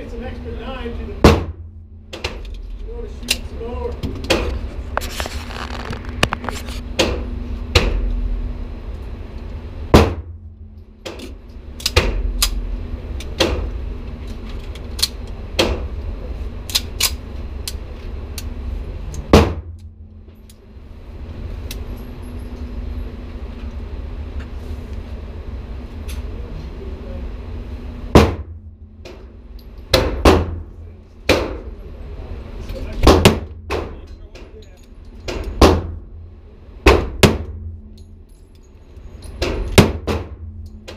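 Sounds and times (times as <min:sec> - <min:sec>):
steady low hum: 0:00.0 - 0:40.9
loud gunshots: 0:01.2 - 0:01.6, 0:09.9 - 0:10.3, 0:19.3 - 0:19.7, 0:28.2 - 0:28.6, 0:29.9 - 0:30.6, 0:33.0 - 0:33.9, 0:35.6 - 0:36.0, 0:39.8 - 0:40.4.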